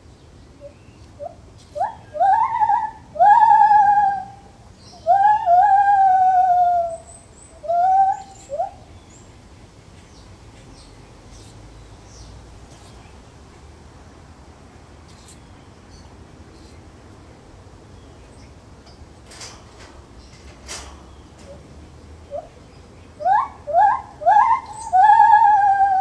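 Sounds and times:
gibbon whooping calls: 0:01.2 - 0:08.8, 0:23.2 - 0:26.0.

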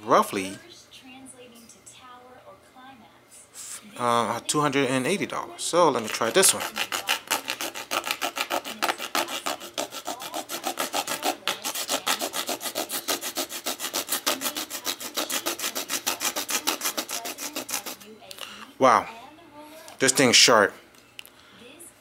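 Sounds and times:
knife sawing rasping: 0:06.0 - 0:18.0.

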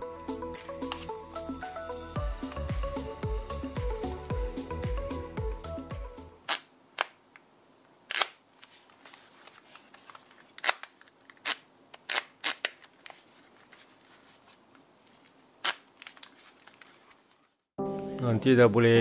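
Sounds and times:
background music: 0:00.0 - 0:06.4, 0:17.8 - 0:19.0
headphones plastic clicks: 0:00.8 - 0:01.1, 0:08.1 - 0:13.9.

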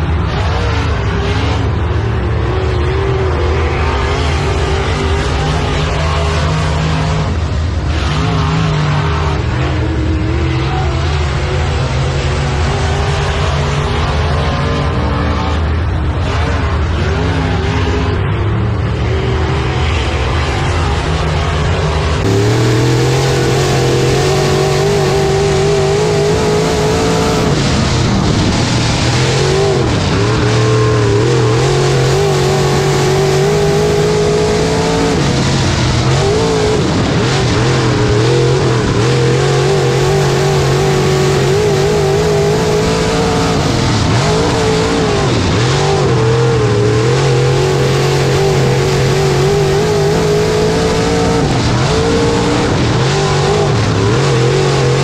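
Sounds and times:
race car engine at full throttle: 0:00.0 - 0:55.0.

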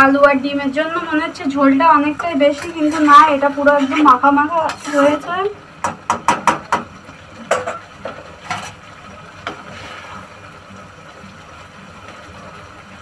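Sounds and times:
spatula scraping a pan: 0:02.2 - 0:05.4.

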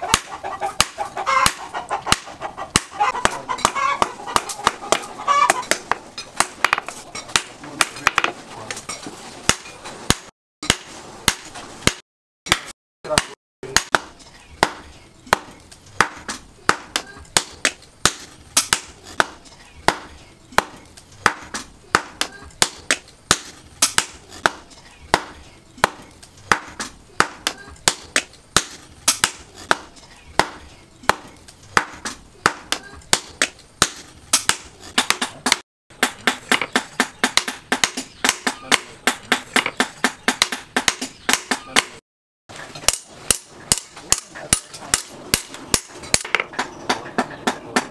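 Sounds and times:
hammer striking metal on anvil: 0:42.8 - 0:47.9.

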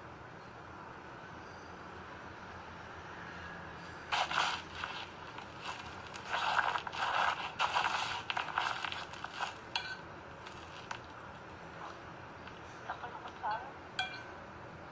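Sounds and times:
fork scraping on a plate: 0:04.1 - 0:10.9
rustling handling noise: 0:04.1 - 0:13.5.

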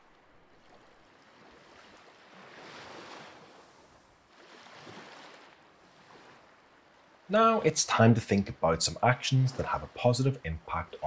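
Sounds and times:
small waves washing on sand: 0:00.0 - 0:08.1.

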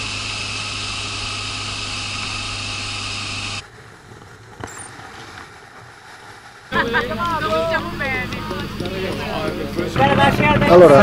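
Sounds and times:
motorcycle engine hum: 0:00.0 - 0:11.0.

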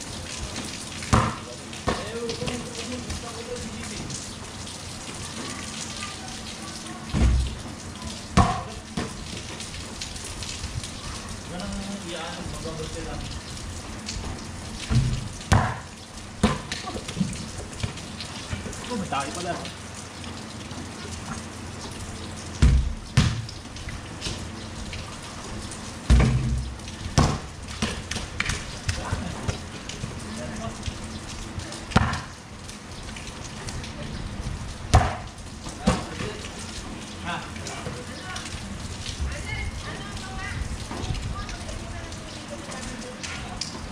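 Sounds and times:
rain on concrete: 0:00.0 - 0:43.9
heavy thumps: 0:22.6 - 0:23.5, 0:26.1 - 0:28.0.

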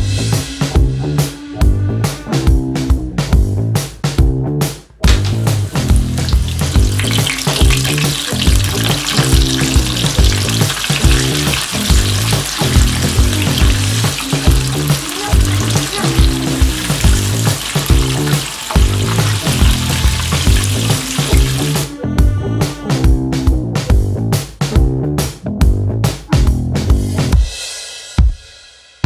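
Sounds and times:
background music with beat: 0:00.0 - 0:29.0
oil sizzling and bubbling: 0:05.0 - 0:21.9.

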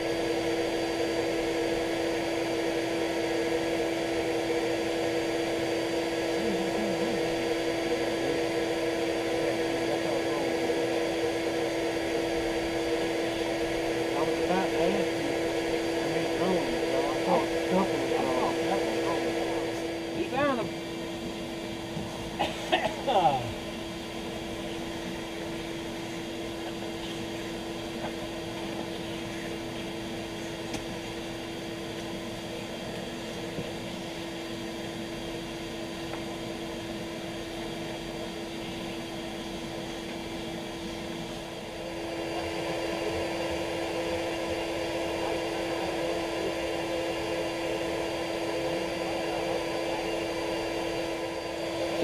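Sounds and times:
vacuum humming: 0:00.0 - 0:52.0.

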